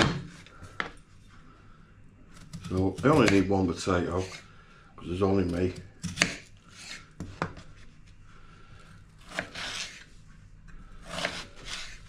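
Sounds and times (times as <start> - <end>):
knife cutting potato on board: 2.4 - 4.4, 5.3 - 7.7, 9.2 - 10.1, 11.1 - 12.0.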